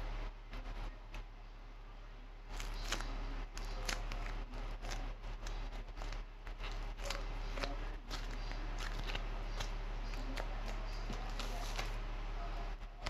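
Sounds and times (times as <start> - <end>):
steady low hum: 0.0 - 13.0
clay crunching between fingers: 2.5 - 12.0.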